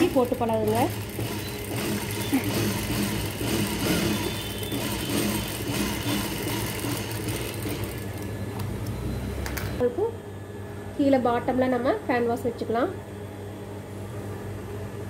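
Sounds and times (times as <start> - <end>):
sewing machine motor humming: 0.0 - 9.1.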